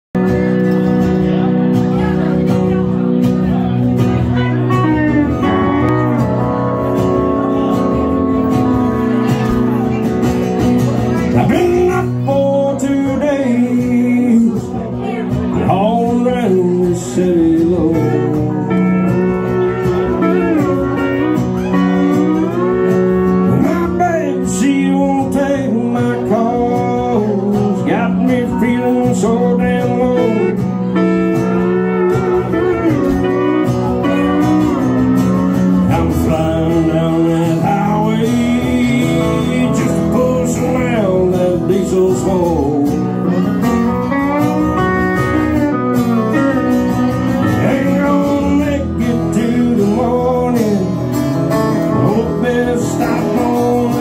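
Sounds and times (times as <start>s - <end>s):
strummed acoustic guitar: 0.2s - 54.0s
pedal steel guitar sliding notes: 4.0s - 12.3s, 17.8s - 24.4s, 28.9s - 54.0s.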